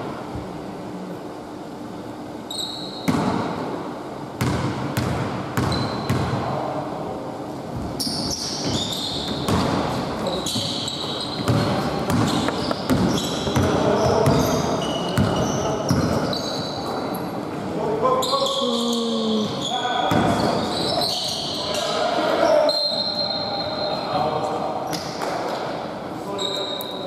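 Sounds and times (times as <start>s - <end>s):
sneakers squeaking on floor: 2.5s - 3.5s, 4.4s - 6.4s, 7.8s - 17.2s, 18.1s - 24.2s, 26.3s - 27.0s
basketball bouncing on hardwood: 11.4s - 14.4s.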